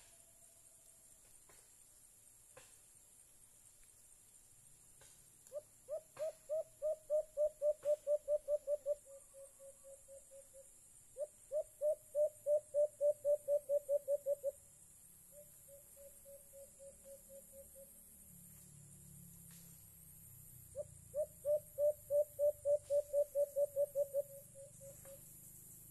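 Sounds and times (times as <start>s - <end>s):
dove cooing: 5.5s - 10.6s, 11.2s - 14.6s, 20.7s - 25.2s.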